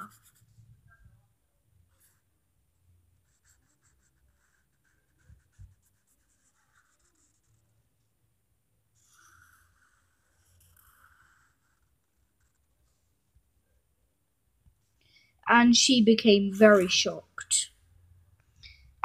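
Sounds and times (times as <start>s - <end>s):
marker scratching and squeaking: 0.0s - 0.6s, 3.2s - 7.6s, 9.0s - 13.0s.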